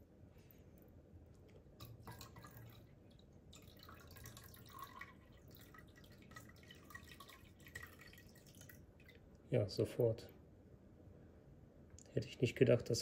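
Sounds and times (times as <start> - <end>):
water dripping and trickling: 1.5 - 9.3.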